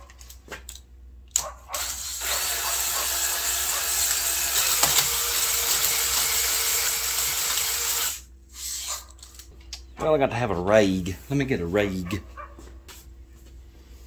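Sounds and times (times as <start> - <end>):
drill honing cylinder scraping whir: 1.8 - 8.8.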